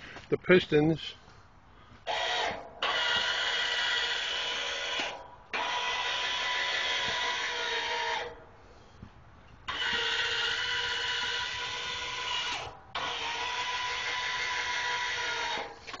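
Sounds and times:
electric actuator motor whine: 2.1s - 8.4s, 9.7s - 16.0s.

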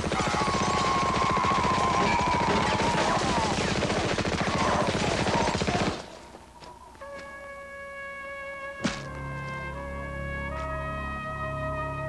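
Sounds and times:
rapid machine-gun fire: 0.0s - 6.1s.

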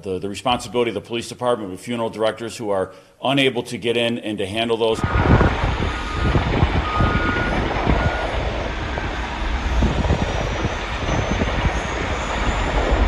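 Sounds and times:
faint short beeps: 5.0s - 12.8s
low rumble: 5.0s - 13.0s
wind buffeting microphone: 5.0s - 13.0s.

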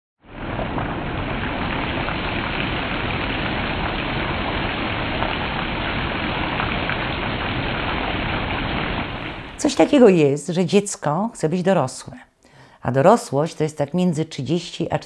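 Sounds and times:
steady rain falling: 0.2s - 10.2s.

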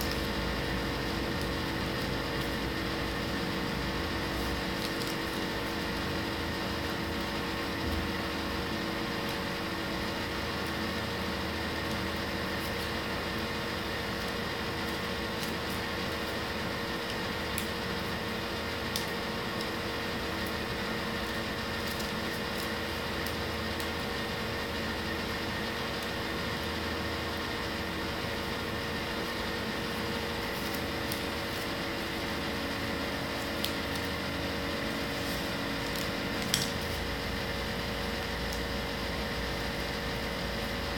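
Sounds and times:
appliance humming: 0.0s - 40.9s
paper ticks: 35.2s - 37.0s.

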